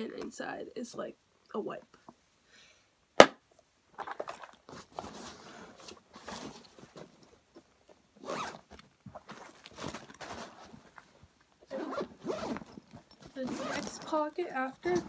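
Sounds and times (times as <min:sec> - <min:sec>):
fabric rustling: 0:04.0 - 0:15.0
zipper being pulled: 0:08.2 - 0:10.9, 0:11.7 - 0:14.1.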